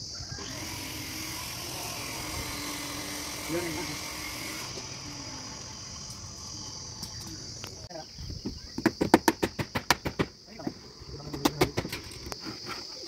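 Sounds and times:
high insect drone: 0:00.0 - 0:13.0
sharp knocks: 0:08.4 - 0:10.4.

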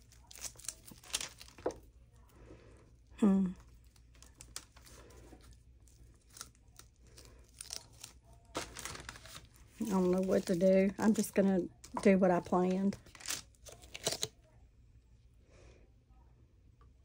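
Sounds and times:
person humming sigh: 0:03.2 - 0:03.6.

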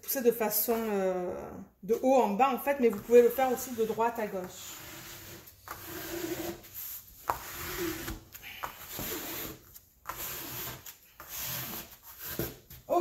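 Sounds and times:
ruler scraping across paper: 0:02.9 - 0:12.6.

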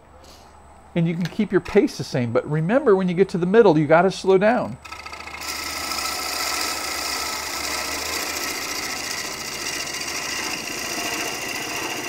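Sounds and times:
gouge cutting spinning wood: 0:04.8 - 0:12.0
lathe humming: 0:04.8 - 0:12.0.

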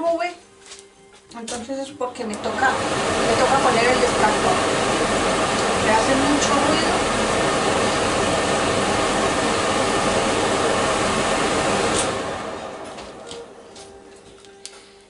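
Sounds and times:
extractor fan running: 0:02.0 - 0:15.0.

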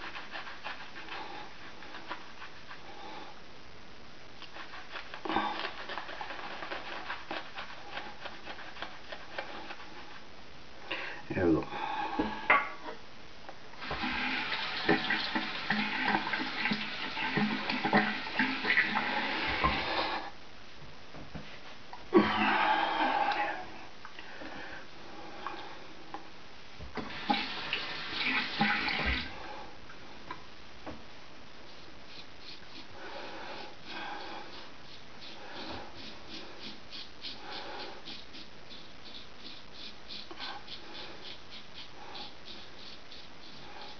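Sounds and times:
tap water running into sink: 0:13.8 - 0:19.9, 0:27.0 - 0:29.3
breathing through nose: 0:32.8 - 0:38.2
razor scraping stubble: 0:33.6 - 0:43.9.

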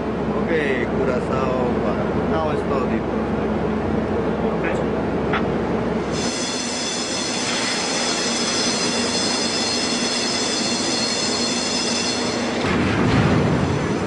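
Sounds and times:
high-pitched metal squeal: 0:06.1 - 0:12.6.

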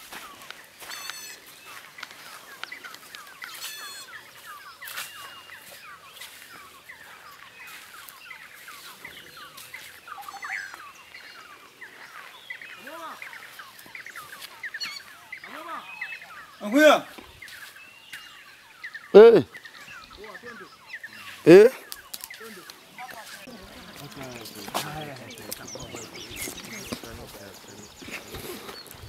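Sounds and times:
birds chirping: 0:00.0 - 0:29.0
quick high bird trills: 0:00.8 - 0:01.4, 0:03.5 - 0:04.2.

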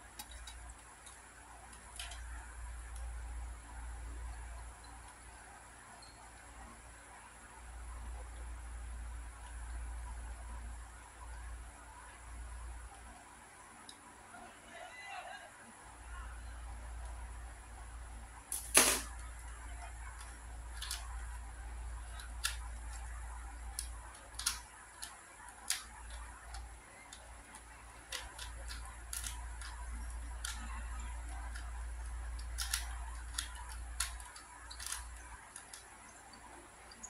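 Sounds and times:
puzzle cube plastic clicks: 0:00.1 - 0:02.3, 0:18.5 - 0:37.0.

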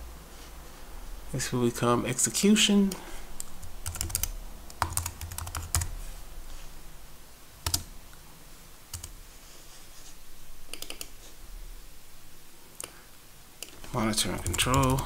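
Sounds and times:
keyboard typing: 0:02.9 - 0:06.0, 0:07.6 - 0:07.9, 0:08.9 - 0:09.2, 0:10.7 - 0:11.1, 0:13.6 - 0:15.0.

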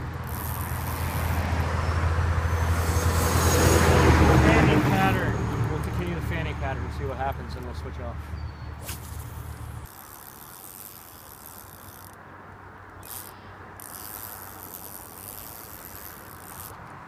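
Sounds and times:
fishing reel whirring: 0:00.0 - 0:04.2, 0:08.8 - 0:12.2, 0:12.9 - 0:16.9.

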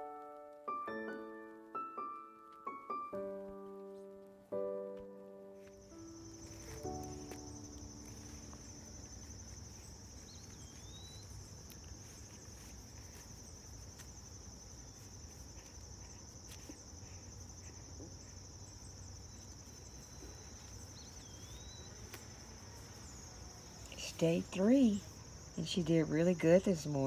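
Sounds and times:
insects trilling: 0:05.6 - 0:27.0.

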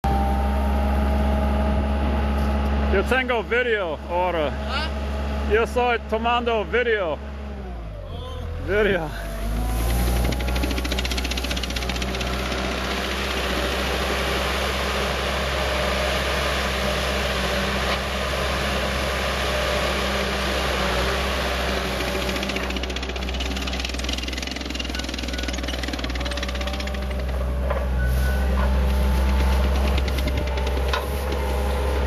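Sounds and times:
diesel engine running steadily: 0:00.0 - 0:32.0.

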